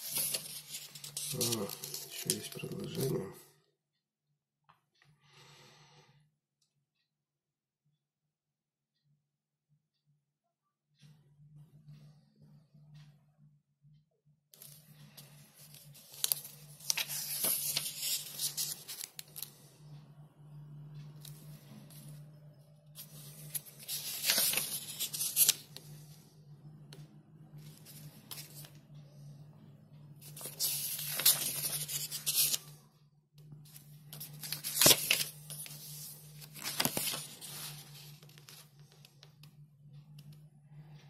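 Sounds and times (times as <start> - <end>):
paper pages rustling: 0.0 - 3.2, 14.6 - 19.6, 23.0 - 25.9, 27.6 - 28.8, 30.2 - 32.8, 33.7 - 39.2
paper flick: 15.6 - 19.5, 23.0 - 25.6, 30.2 - 32.6, 34.1 - 38.6.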